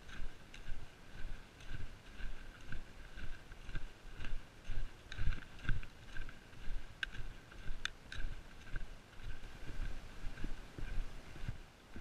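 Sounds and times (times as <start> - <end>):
footsteps on sand: 0.0 - 12.0
trekking pole clicks: 5.0 - 8.8.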